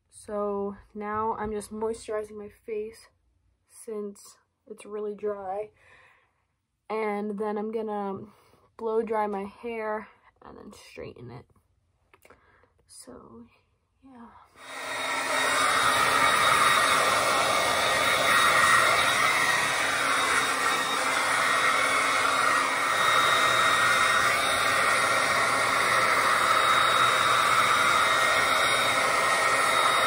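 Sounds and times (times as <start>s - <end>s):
hair dryer running: 14.6s - 30.0s.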